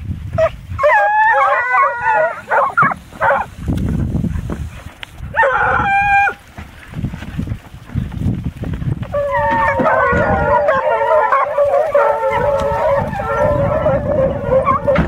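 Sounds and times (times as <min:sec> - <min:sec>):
hounds baying: 0:00.4 - 0:03.6, 0:05.3 - 0:06.4, 0:09.1 - 0:15.0.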